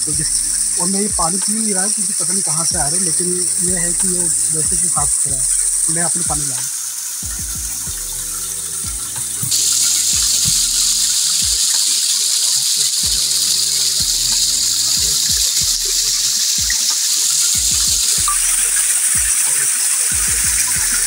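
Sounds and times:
water cascading over rocks: 0.0s - 21.0s
low bumps: 2.7s - 11.7s.

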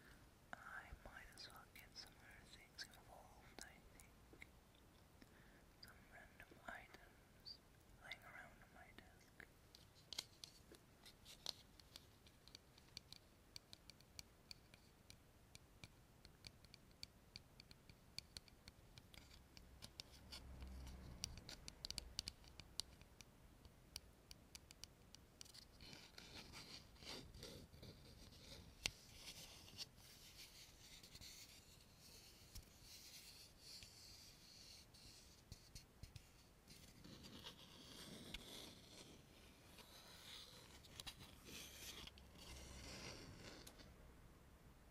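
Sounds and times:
soft scratching and rubbing: 9.8s - 12.4s, 25.4s - 44.0s.

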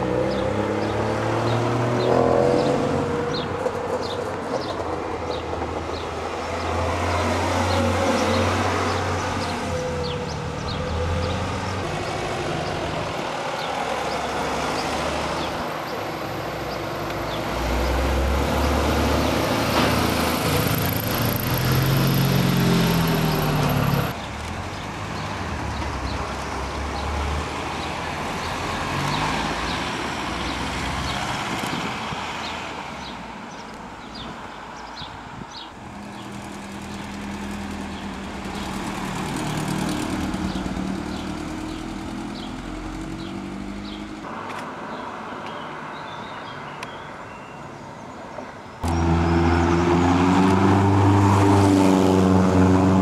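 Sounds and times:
cars driving past: 0.0s - 46.9s, 48.8s - 53.0s
engine revving up: 17.5s - 24.1s, 48.8s - 53.0s
motorcycle driving past: 48.8s - 53.0s.

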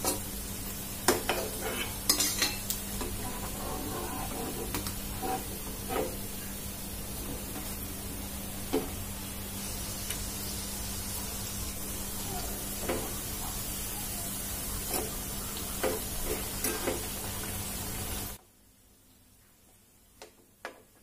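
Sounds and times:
dough sizzling in hot fat: 0.0s - 21.0s
metal utensil clinking pan: 1.2s - 2.7s.

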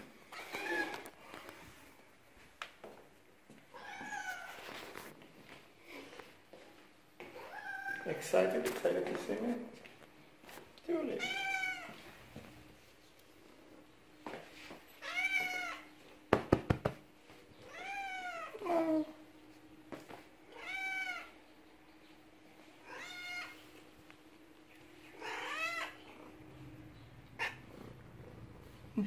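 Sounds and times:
cat meowing: 7.4s - 8.1s, 11.2s - 12.0s, 15.0s - 15.9s, 17.6s - 19.1s, 20.5s - 21.4s, 22.8s - 23.6s, 25.1s - 26.0s
sharp knocks: 16.3s - 17.0s.

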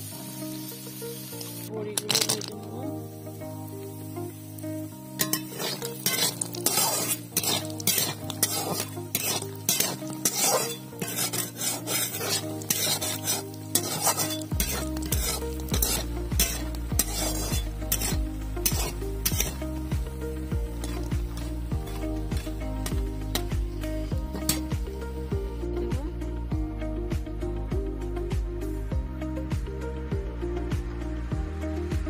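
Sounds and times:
food sizzling in oil: 0.0s - 26.4s
background music: 0.0s - 32.0s
metal spatula scraping wok: 2.0s - 2.7s, 5.1s - 25.0s.

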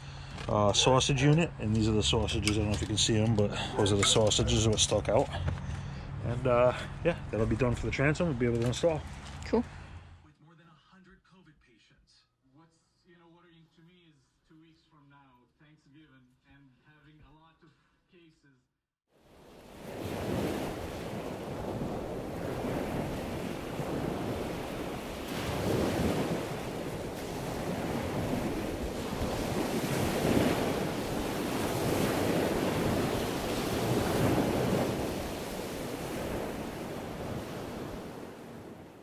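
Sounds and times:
ocean waves washing in: 19.2s - 39.0s.

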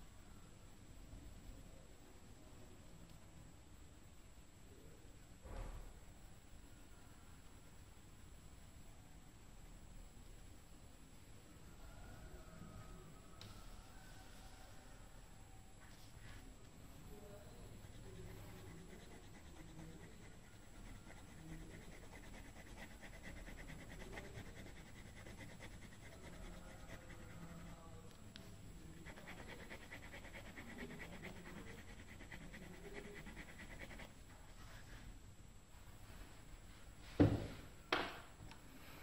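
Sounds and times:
pencil scratching on paper: 17.7s - 27.8s, 28.8s - 34.8s.

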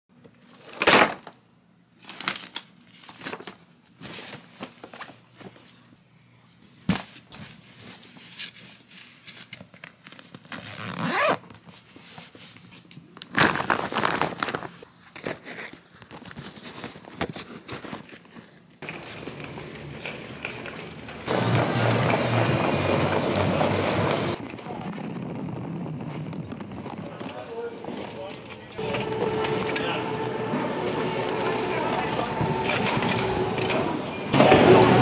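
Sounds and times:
zipper sounds: 10.4s - 11.6s
suitcase scraping: 18.8s - 24.5s, 26.2s - 35.0s.

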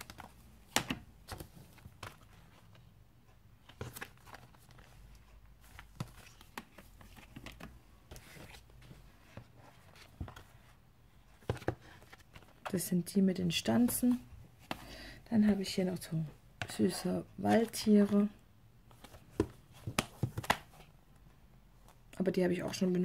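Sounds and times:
faint plastic rustling: 0.0s - 12.9s.

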